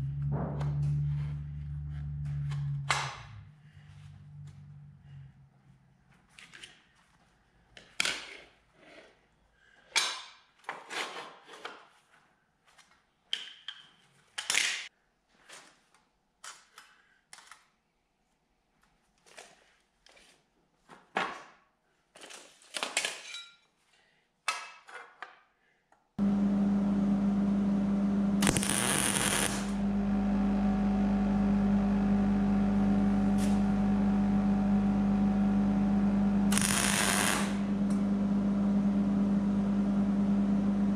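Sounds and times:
crackle bursts: 26.2 - 33.8, 36.5 - 37.9
machine hum: 26.2 - 40.9.

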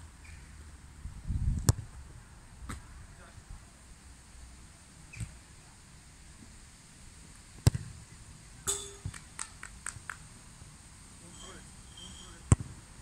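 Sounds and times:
football kicked hard thud: 7.6 - 8.0, 12.5 - 12.8.

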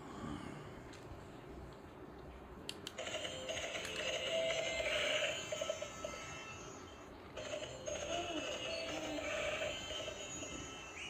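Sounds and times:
tinny electronic toy tune: 3.0 - 11.0.

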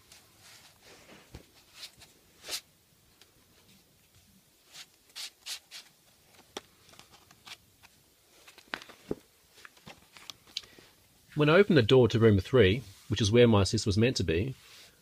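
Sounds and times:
book pages rustling: 3.7 - 10.8.

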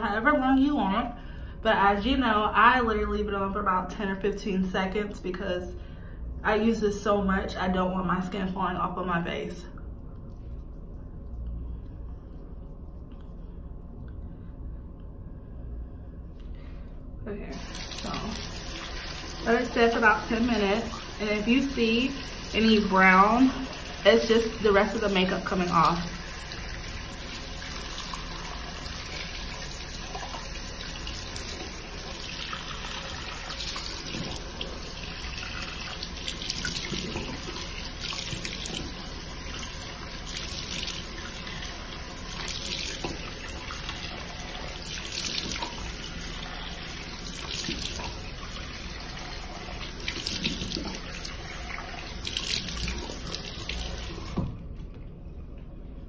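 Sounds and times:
tap running into a sink: 32.5 - 34.7, 35.9 - 39.1, 42.3 - 44.0, 50.0 - 54.9.

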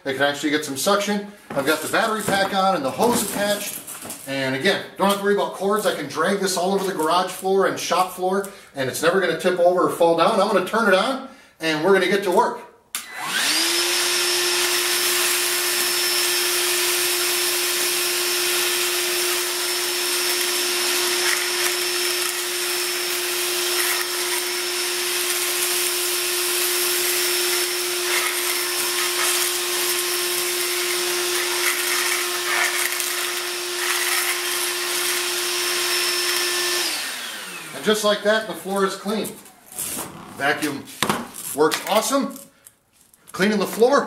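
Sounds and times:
shop vacuum running: 0.6 - 4.2, 13.0 - 42.0
vacuum sucking up leaves: 13.2 - 39.2.

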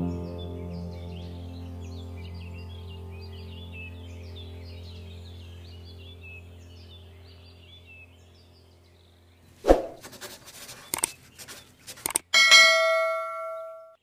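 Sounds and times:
faint background music: 0.0 - 9.5
birdsong: 0.0 - 14.0
quick mouse clicks: 9.7 - 12.3
notification bell dinging: 12.4 - 14.0.

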